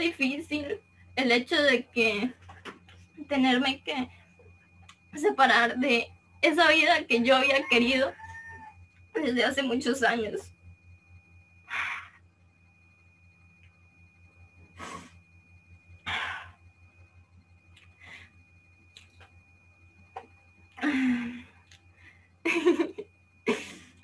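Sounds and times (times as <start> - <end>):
steady low hum: 0.0 - 24.0
woman breathing and sniffing: 14.7 - 15.3.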